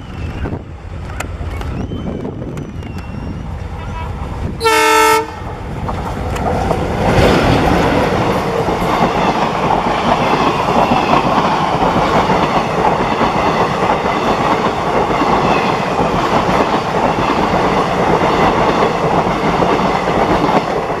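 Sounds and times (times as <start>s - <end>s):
passenger train passing: 0.0s - 21.0s
wheels clattering on rails: 5.4s - 21.0s.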